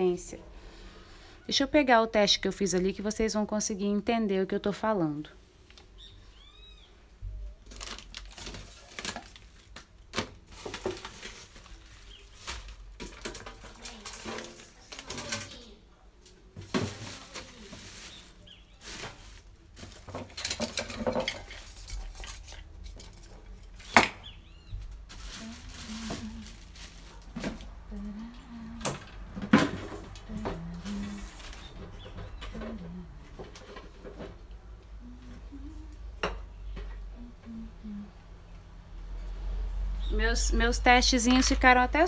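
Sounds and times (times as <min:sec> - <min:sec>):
hard objects clinking and knocking: 0:19.8 - 0:24.2.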